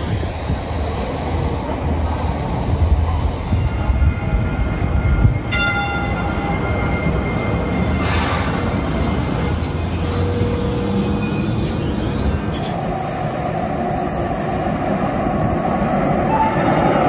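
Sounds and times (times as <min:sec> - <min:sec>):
train running gear rumble: 0:00.0 - 0:17.0
train rushing noise: 0:00.0 - 0:17.0
high wavering wheel squeal: 0:03.8 - 0:13.1.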